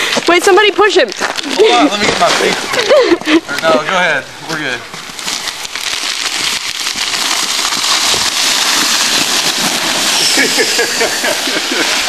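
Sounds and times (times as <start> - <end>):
crusted snow crackling and scraping: 0.0 - 12.0.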